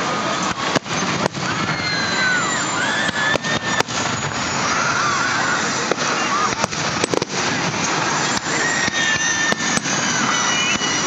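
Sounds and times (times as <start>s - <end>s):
fireworks bangs: 0.0s - 11.0s
steady background noise: 0.0s - 11.0s.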